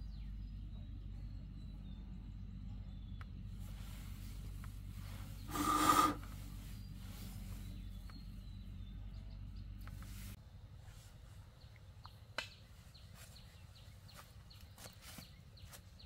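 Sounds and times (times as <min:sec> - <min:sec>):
machine humming: 0:00.0 - 0:10.0
loud harsh noise burst: 0:05.5 - 0:06.3.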